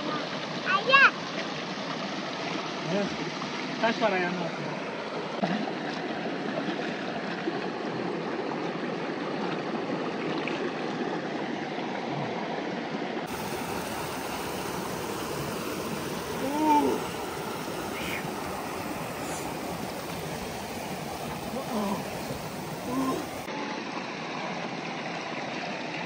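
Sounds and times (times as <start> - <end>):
mountain stream rushing: 0.0 - 12.0, 13.2 - 26.0
short cry rising and falling: 16.2 - 20.0, 21.4 - 23.5.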